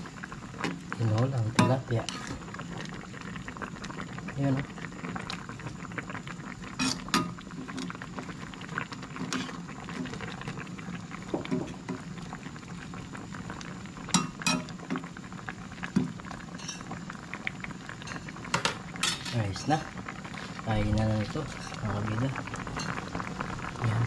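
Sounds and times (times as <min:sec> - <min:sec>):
pot of soup boiling: 0:00.0 - 0:24.0
metal clinking on pot: 0:01.6 - 0:01.8, 0:14.1 - 0:14.7, 0:16.6 - 0:16.9.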